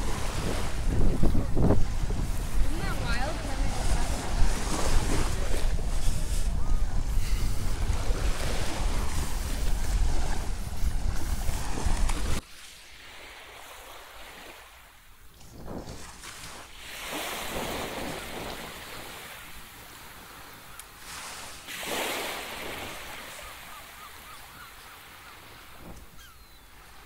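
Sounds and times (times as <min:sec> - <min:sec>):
wind buffeting microphone: 0:00.0 - 0:12.4
surf washing: 0:00.0 - 0:27.0.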